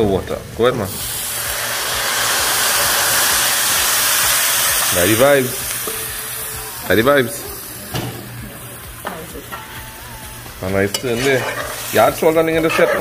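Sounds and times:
water pouring into hot pan: 0:00.9 - 0:06.9.

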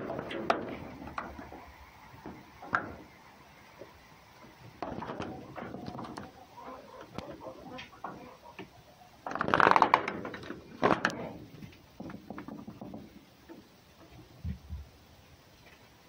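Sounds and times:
scratching and rustling on straw: 0:00.0 - 0:12.0.

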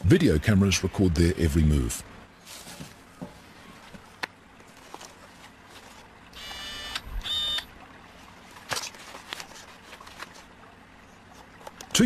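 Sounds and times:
high buzzy beeps: 0:06.4 - 0:07.7.

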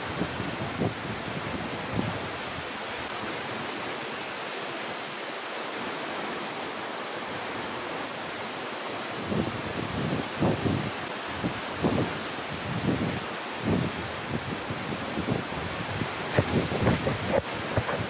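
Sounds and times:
wind gusts on microphone: 0:00.0 - 0:03.9, 0:09.0 - 0:18.0
waterfall rushing: 0:00.0 - 0:18.0.

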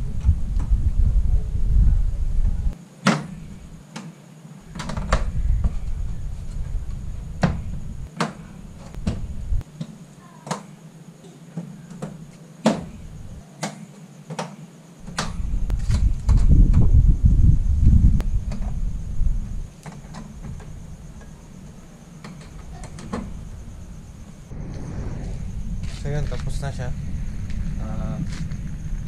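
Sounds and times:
low rumble: 0:00.0 - 0:02.8, 0:23.4 - 0:29.0.

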